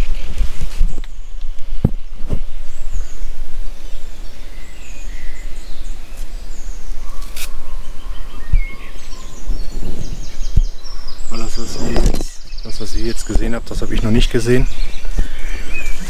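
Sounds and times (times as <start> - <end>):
small birds chirping: 0.0 - 16.0
wind rumble on microphone: 0.0 - 16.0
soft thuds: 1.8 - 2.5.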